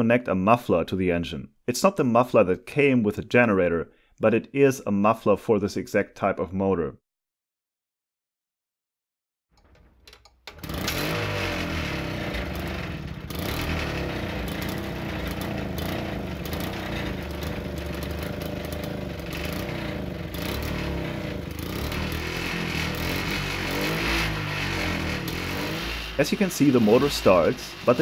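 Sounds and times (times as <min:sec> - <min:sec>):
generator engine surging: 0:10.5 - 0:28.0.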